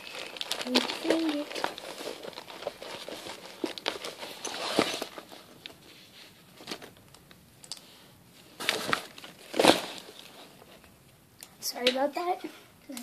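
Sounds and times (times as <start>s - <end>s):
rummaging through bag: 0.0s - 5.8s, 8.6s - 10.8s.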